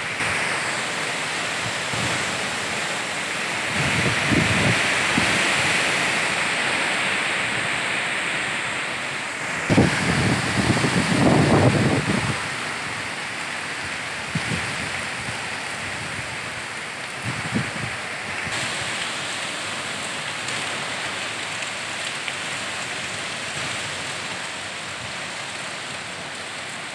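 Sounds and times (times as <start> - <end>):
rain pouring: 0.0 - 26.9
wind: 0.0 - 26.9
wind gusts bumping microphone: 3.6 - 7.9, 9.4 - 13.1, 14.3 - 16.4, 17.2 - 18.9.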